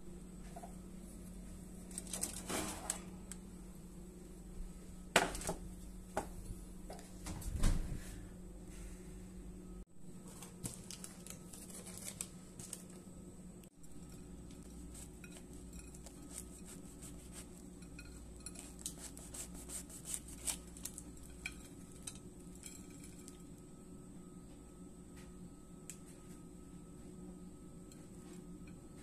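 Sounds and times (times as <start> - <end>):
steady low hum: 0.0 - 29.0
knife cutting crusty bagel: 14.8 - 23.1.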